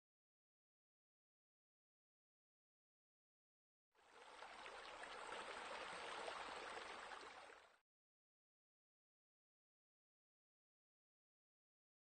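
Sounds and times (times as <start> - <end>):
faint water splashing into pool: 4.0 - 7.8.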